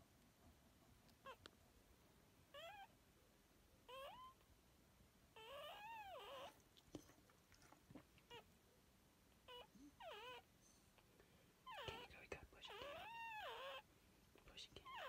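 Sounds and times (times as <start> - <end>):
dog mewing cries: 2.6 - 2.9, 3.9 - 4.4, 5.4 - 6.6, 9.5 - 10.5, 12.7 - 13.8.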